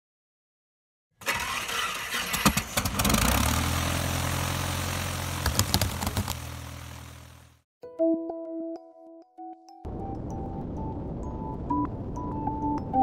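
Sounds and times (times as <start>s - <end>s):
engine cranking with clicks: 1.2s - 3.4s.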